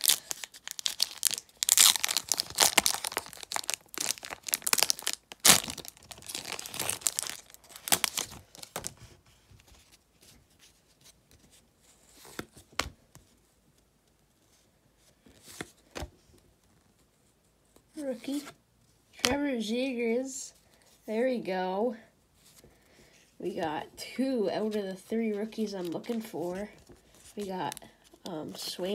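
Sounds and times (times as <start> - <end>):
plastic wrapper tearing and crinkling: 0.0 - 8.9.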